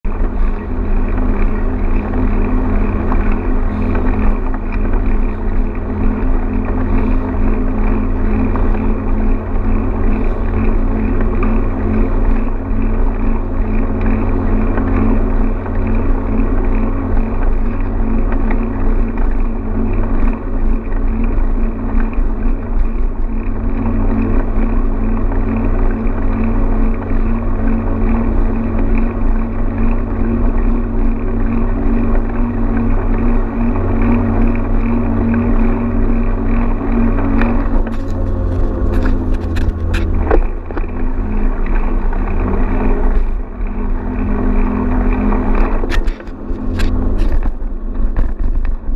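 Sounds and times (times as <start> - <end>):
constant low hum: 0.0 - 48.9
wind rumble on microphone: 0.0 - 48.9
bike rolling over sand: 0.1 - 48.9.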